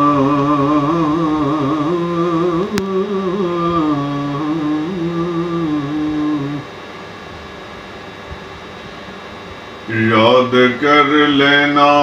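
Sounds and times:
man chanting: 0:00.0 - 0:06.7, 0:09.9 - 0:12.0
faint room hum: 0:00.0 - 0:12.0.

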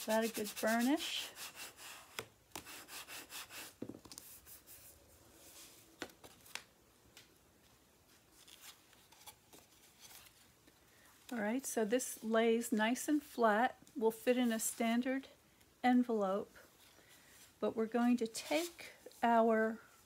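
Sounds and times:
rubbing of cardstock: 0:00.0 - 0:04.9.

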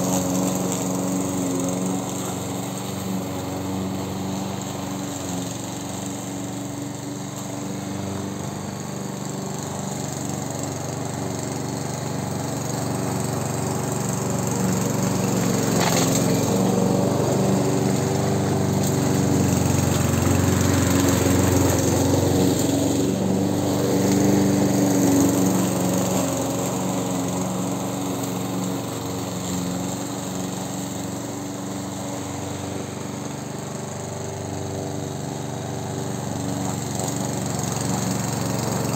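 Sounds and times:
lawn mower cutting grass: 0:00.0 - 0:38.9.

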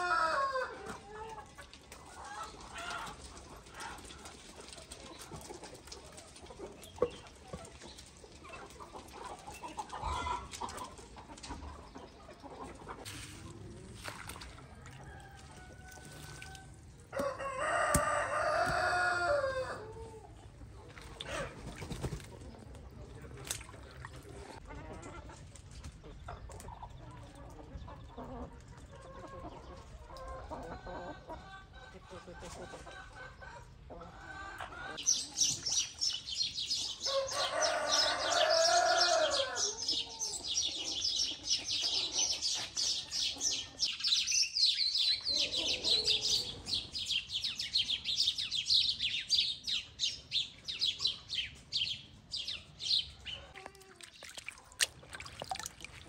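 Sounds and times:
rooster crowing: 0:00.0 - 0:00.8, 0:17.2 - 0:19.9, 0:37.1 - 0:39.8
chickens clucking: 0:00.0 - 0:56.0.

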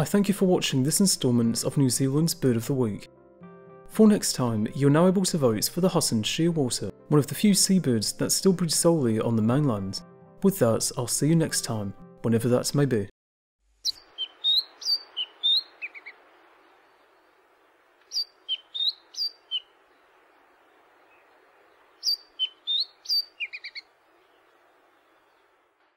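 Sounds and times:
faint steady hiss: 0:13.7 - 0:25.9
songbird whistling: 0:13.8 - 0:16.2, 0:18.1 - 0:19.7, 0:22.0 - 0:24.4.

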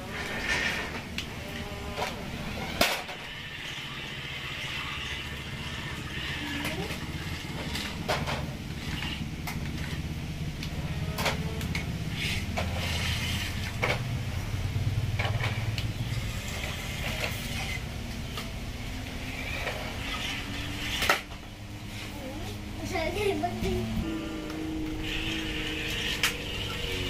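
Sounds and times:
electric motors whirring: 0:00.0 - 0:27.0.

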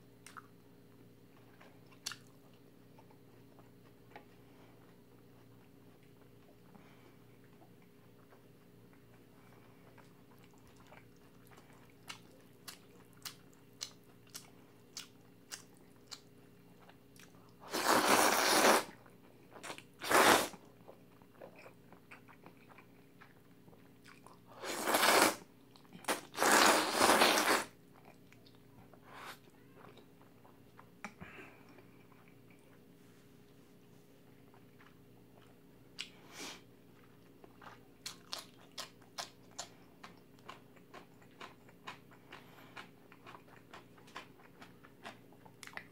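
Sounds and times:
person chewing food: 0:00.2 - 0:33.0, 0:34.2 - 0:45.9
loud slurping of noodles: 0:17.7 - 0:18.9, 0:20.0 - 0:20.5, 0:24.6 - 0:25.4, 0:26.1 - 0:27.7.

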